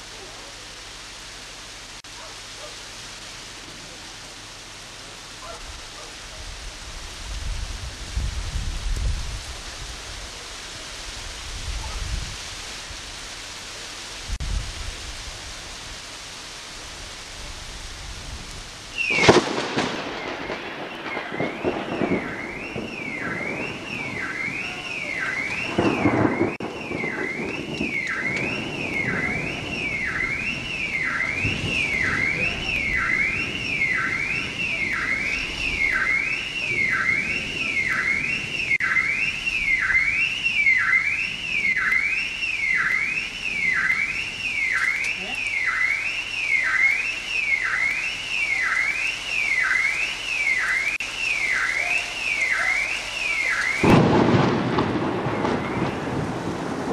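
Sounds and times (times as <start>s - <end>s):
steady rain: 0.0s - 56.9s
thunder crack and rumble: 6.5s - 12.4s, 16.9s - 45.1s, 53.4s - 56.9s
car alarm wailing: 18.9s - 56.8s.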